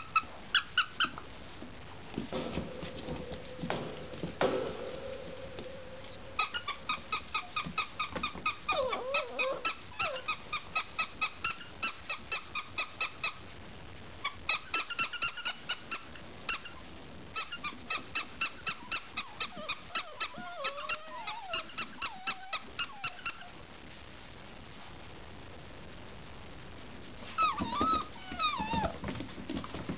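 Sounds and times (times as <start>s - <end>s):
puppy whining: 6.4s - 10.4s, 18.4s - 23.6s, 27.3s - 29.0s.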